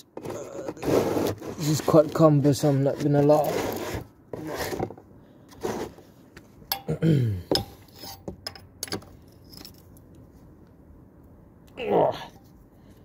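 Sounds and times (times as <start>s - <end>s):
wrench clinking on metal: 6.7s - 7.0s.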